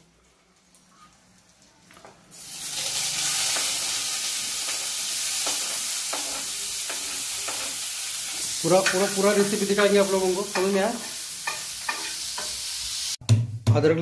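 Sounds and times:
onion sizzling in hot oil: 0:00.2 - 0:13.2.

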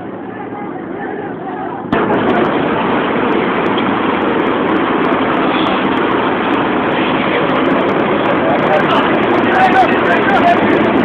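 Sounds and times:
boat engine running: 0:00.0 - 0:11.0.

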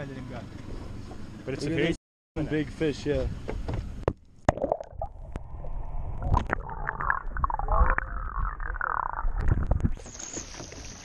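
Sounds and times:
wavering tones: 0:05.4 - 0:09.6.

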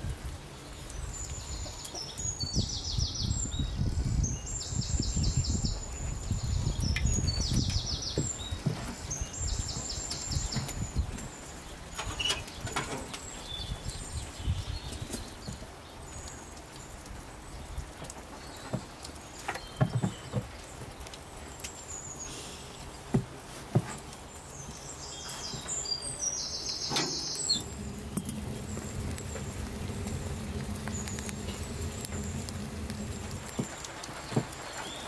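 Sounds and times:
small birds chirping: 0:00.2 - 0:35.0
steady low rumble: 0:27.4 - 0:34.3.

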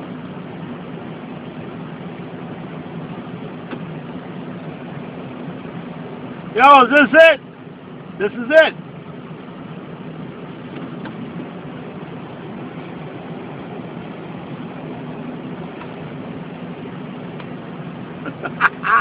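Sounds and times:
car engine humming: 0:00.0 - 0:19.0
road noise: 0:00.0 - 0:19.0.

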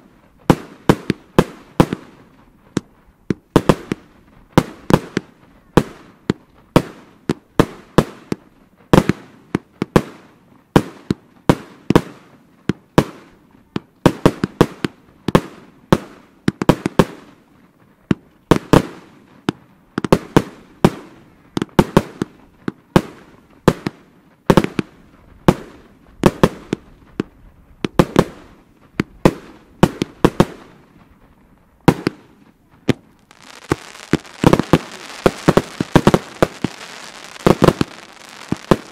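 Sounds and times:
firework bangs: 0:03.4 - 0:10.2, 0:31.8 - 0:38.9
steady hiss: 0:28.4 - 0:38.9.

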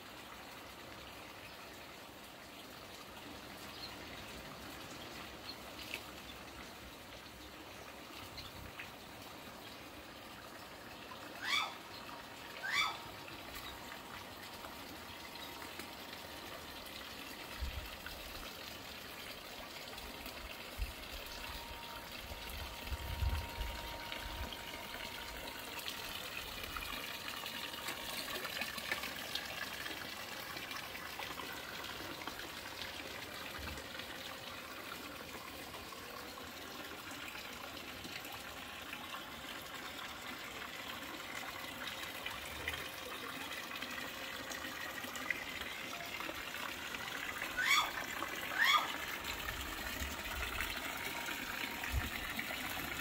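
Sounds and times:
water trickling into pool: 0:00.0 - 0:53.0.

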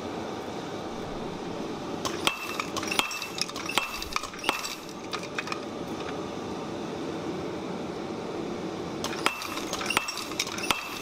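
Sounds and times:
metal clinking on anvil: 0:02.1 - 0:05.6, 0:09.1 - 0:11.0.

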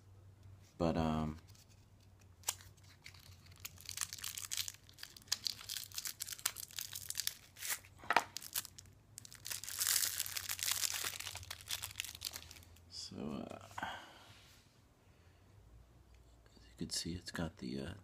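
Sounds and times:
packaging crinkling and rustling: 0:02.4 - 0:12.8.

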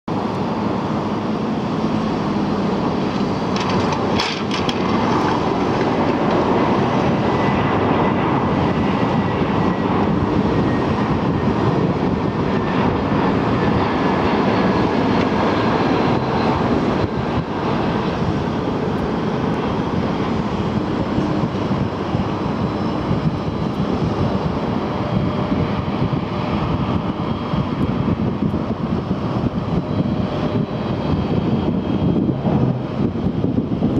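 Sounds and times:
jet engines roaring: 0:00.1 - 0:33.9.

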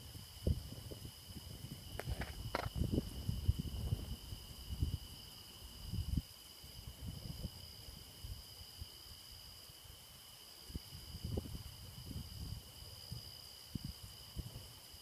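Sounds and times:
insect chorus chirring: 0:00.0 - 0:15.0.

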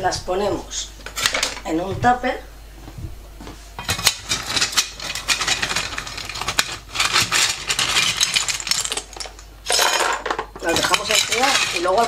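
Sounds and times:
shells clattering in metal pot: 0:03.8 - 0:12.0.

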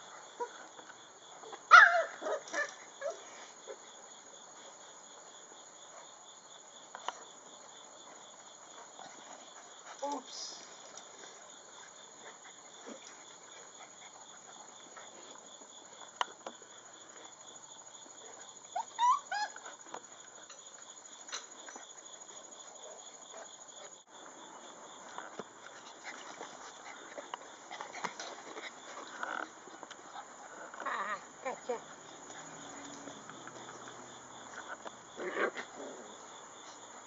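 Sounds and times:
insects chirring: 0:00.0 - 0:37.0
puppies yelping: 0:18.7 - 0:19.8.

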